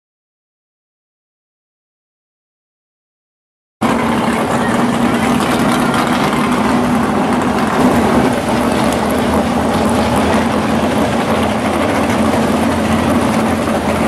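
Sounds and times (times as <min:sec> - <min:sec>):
car engines idling: 0:03.8 - 0:14.0.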